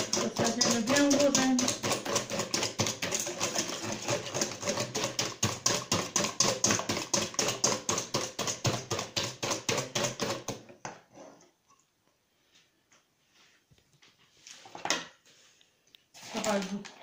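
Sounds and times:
whisk clattering in metal bowl: 0.0 - 10.6.

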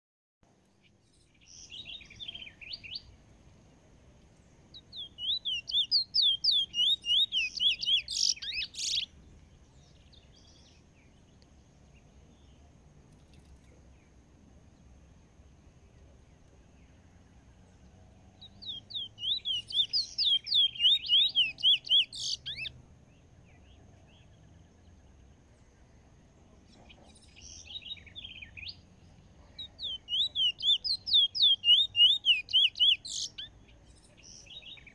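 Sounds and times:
bullfinch singing: 1.4 - 3.2, 4.7 - 9.2, 18.4 - 22.7, 26.6 - 34.9.

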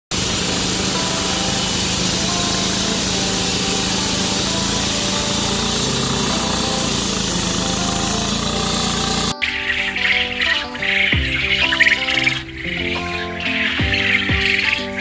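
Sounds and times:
saw blade grinding concrete: 0.1 - 9.4
concrete saw engine running: 0.1 - 15.0.

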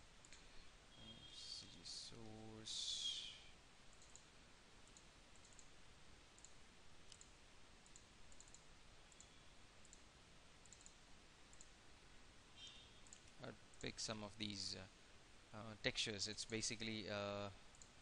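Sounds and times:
low steady hiss: 0.0 - 18.0
computer mouse clicks: 3.9 - 5.7, 6.4 - 11.8, 13.0 - 13.4, 17.7 - 18.0.

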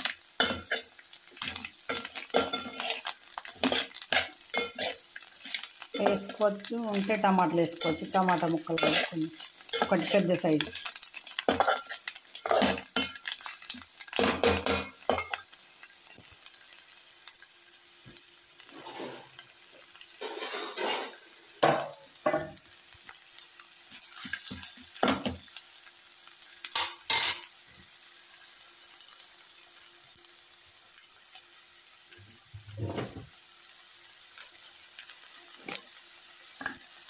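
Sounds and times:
frying sizzle: 0.0 - 37.0
steel ladle scraping a pot: 18.7 - 19.3, 20.2 - 21.2.

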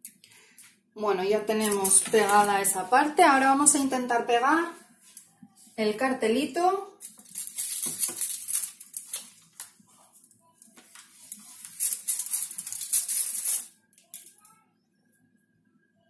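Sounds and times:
crinkly rustling with clicks: 1.6 - 2.8, 7.0 - 14.5.

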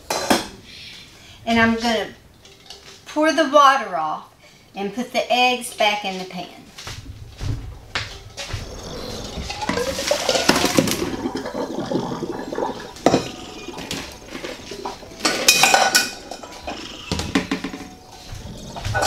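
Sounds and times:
cooking pot clanking: 8.1 - 19.0
water pouring: 8.6 - 17.6.

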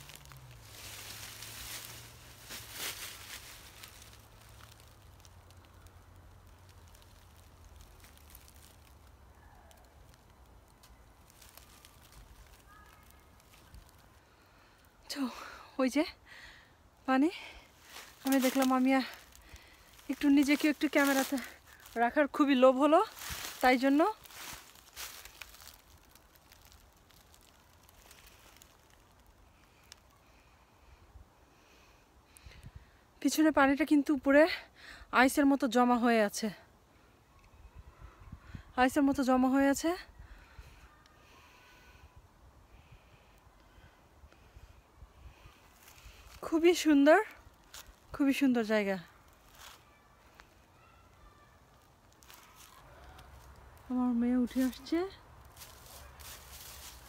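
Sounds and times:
dry leaves crackling: 0.0 - 30.6, 42.8 - 57.0.

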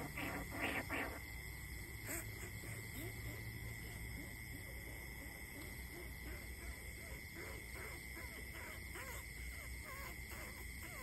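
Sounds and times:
high insect trill: 0.0 - 11.0
person imitating rat squeaks: 6.6 - 11.0.

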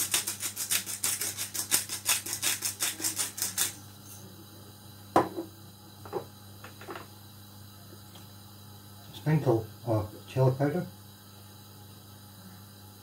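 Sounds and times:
pepper pot shaking: 0.0 - 3.8
pepper pot set down knock: 5.2 - 5.5.

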